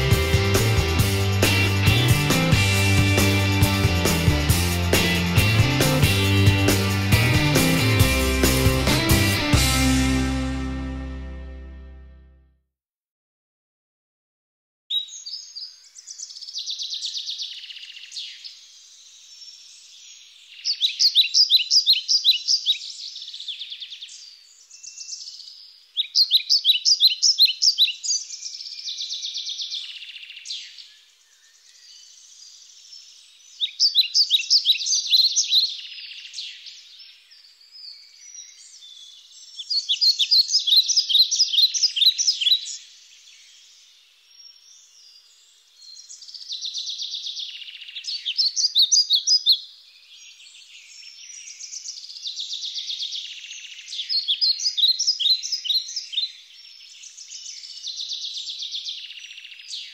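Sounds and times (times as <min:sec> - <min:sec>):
birds trilling chirps: 0:14.9 - 0:59.9
faint high bird chirping: 0:14.9 - 0:59.9.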